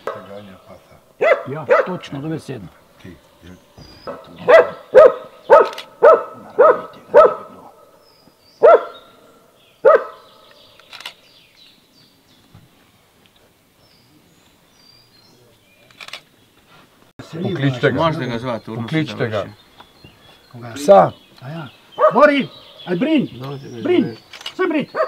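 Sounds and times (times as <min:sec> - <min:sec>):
dog barking: 0:00.0 - 0:00.4, 0:01.2 - 0:02.2, 0:04.1 - 0:07.9, 0:08.6 - 0:09.1, 0:09.8 - 0:10.3, 0:22.0 - 0:22.5
faint bird chirps: 0:02.9 - 0:12.9, 0:17.5 - 0:25.0.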